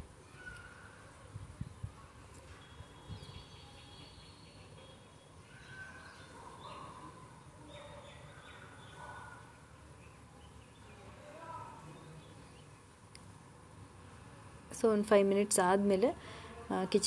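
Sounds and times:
faint high chirps: 0.2 - 9.4.

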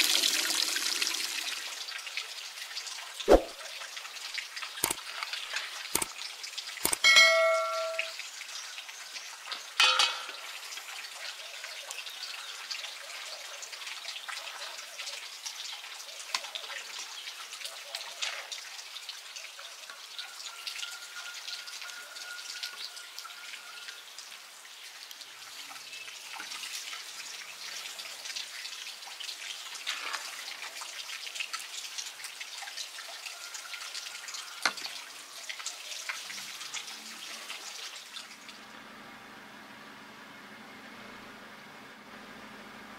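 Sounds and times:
dish clink: 7.0 - 8.1, 9.8 - 10.4
metal dish ringing: 7.0 - 8.1, 9.8 - 10.4.

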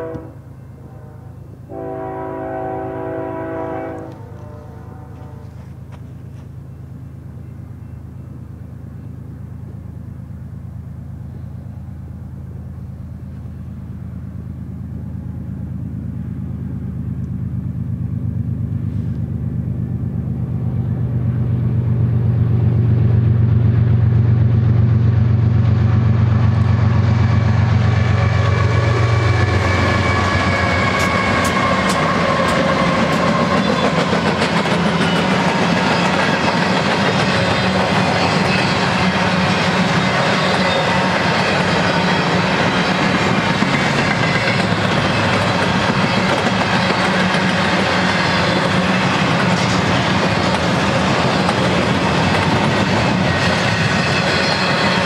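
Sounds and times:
diesel locomotives droning: 0.0 - 55.0
wheels clattering over rail joints: 29.2 - 55.0
faint ringing from wheels: 34.9 - 49.3, 52.9 - 55.0.

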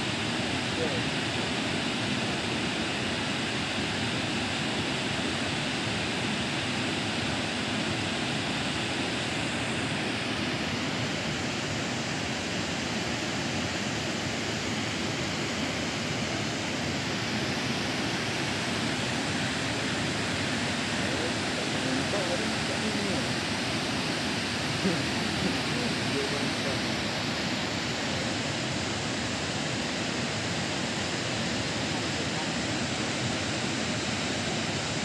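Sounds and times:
waterfall rushing: 7.5 - 35.0.

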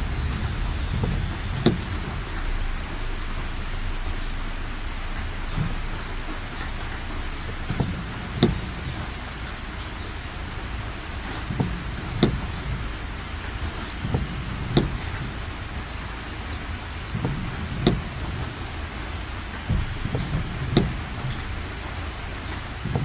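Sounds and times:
heavy rain pouring: 0.0 - 23.0
low rumble: 0.0 - 23.0.

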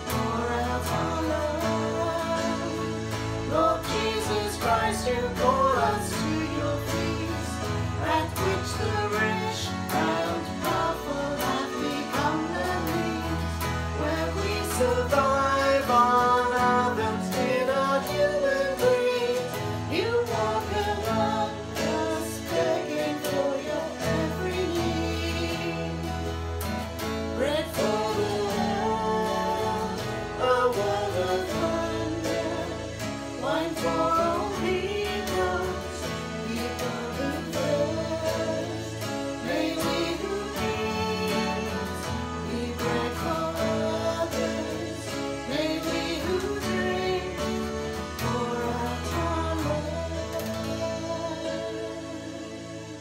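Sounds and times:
electronic keyboard: 0.0 - 53.0
strummed acoustic guitar: 0.0 - 53.0
woman and man singing a hymn: 0.0 - 53.0.

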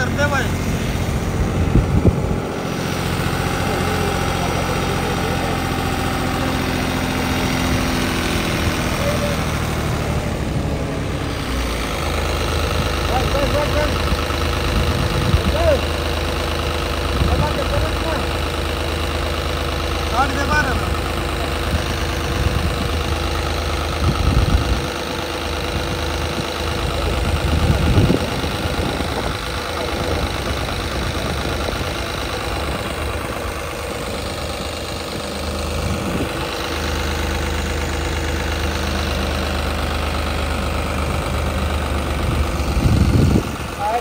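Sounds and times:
tractor diesel engine running: 0.0 - 44.0.

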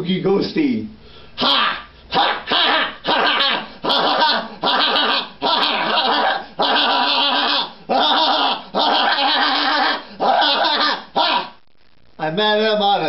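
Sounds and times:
person breathing: 1.0 - 2.1
person laughing spookily: 3.1 - 11.4.

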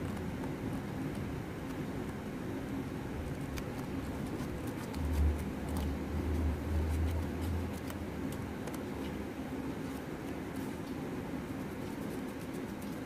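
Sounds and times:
steady background hum: 0.0 - 13.0
scissors snipping paper: 3.2 - 9.2, 11.7 - 13.0.

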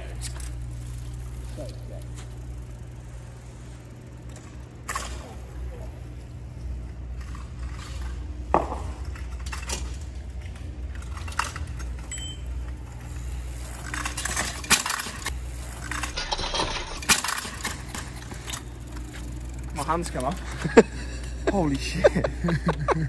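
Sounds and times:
bike rattling and clinking: 0.0 - 23.0.

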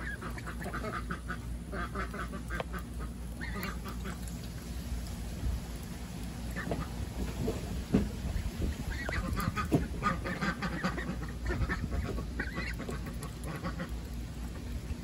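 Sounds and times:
ducklings quacking: 0.0 - 4.4, 6.5 - 7.1, 8.2 - 14.7.

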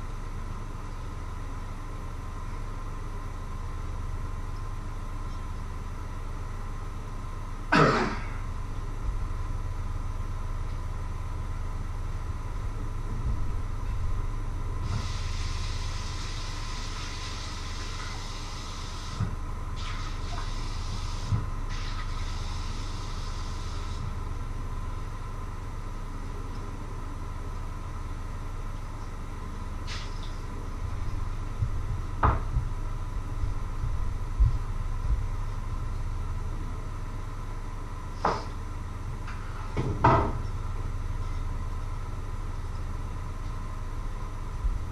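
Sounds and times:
steady low hum: 0.0 - 44.9.

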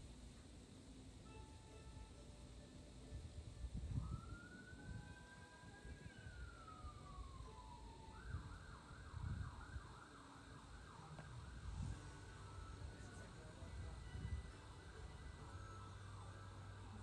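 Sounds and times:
faint emergency siren: 3.7 - 17.0.

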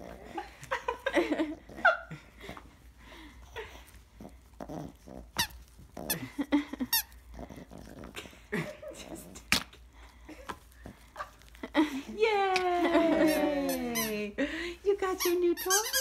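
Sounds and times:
dog growling: 0.0 - 0.5, 1.3 - 2.6, 3.4 - 9.8
squeaky dog toy squeaking: 15.1 - 16.0.

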